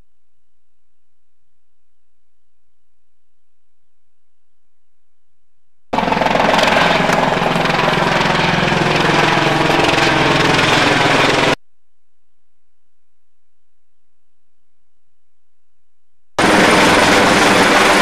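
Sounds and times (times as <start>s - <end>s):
helicopter engine and rotor: 6.0s - 11.6s, 16.4s - 18.0s.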